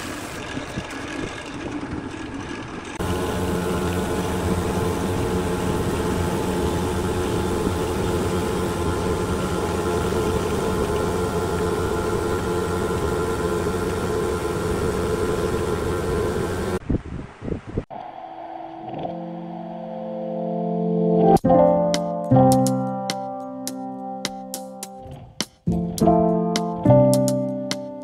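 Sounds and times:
machine humming: 0:00.0 - 0:16.8.

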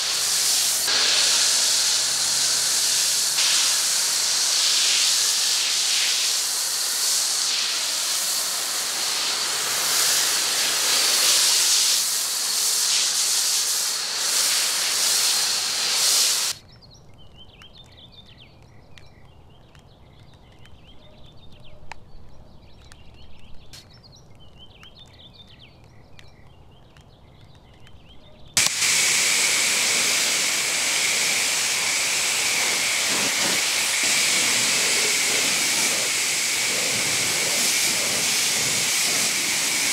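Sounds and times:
pressure washer spraying water: 0:00.0 - 0:16.6, 0:28.6 - 0:39.9.

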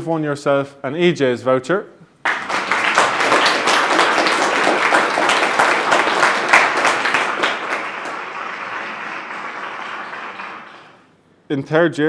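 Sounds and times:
applause: 0:02.2 - 0:11.1.

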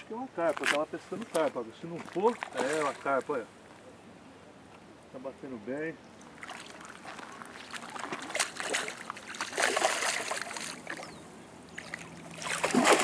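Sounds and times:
fish splashing in water: 0:06.2 - 0:13.0.

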